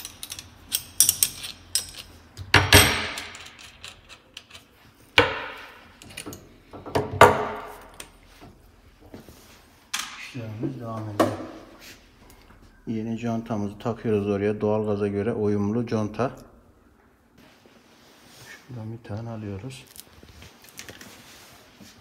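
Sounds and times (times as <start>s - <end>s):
metal clinks and knocks: 0.0s - 8.0s.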